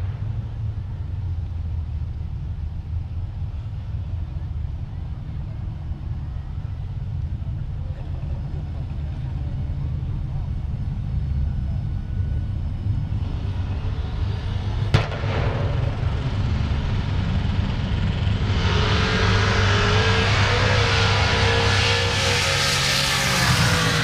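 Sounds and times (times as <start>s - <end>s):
drag race car engines rumbling: 0.0s - 24.0s
sharp crack: 14.9s - 16.4s.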